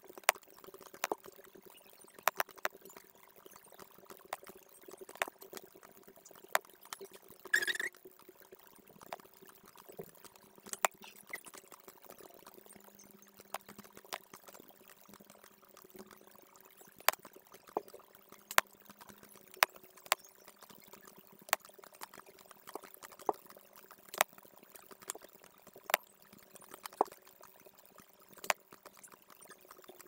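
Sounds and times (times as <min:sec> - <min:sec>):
computer mouse clicks: 0:07.0 - 0:07.9.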